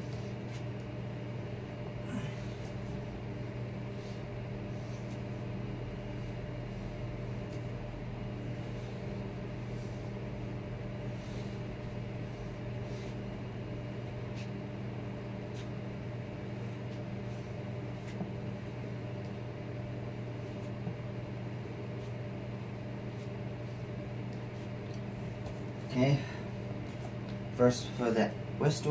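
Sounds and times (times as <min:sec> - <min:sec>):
low mechanical hum: 0:00.0 - 0:28.9.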